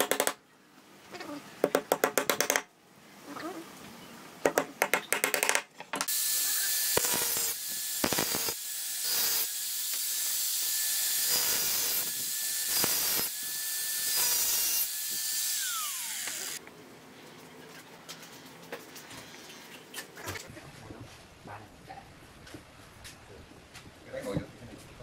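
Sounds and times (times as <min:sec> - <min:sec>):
hammer hitting nails: 0:00.0 - 0:00.4, 0:01.6 - 0:02.7, 0:04.5 - 0:06.1
angle grinder grinding metal: 0:06.1 - 0:16.6
grinder disc spinning down: 0:15.6 - 0:16.6.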